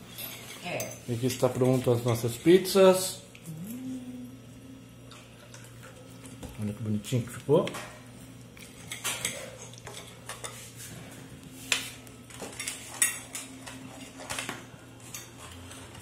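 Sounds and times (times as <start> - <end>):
cutlery and dishes clinking: 8.8 - 10.7, 11.7 - 16.0.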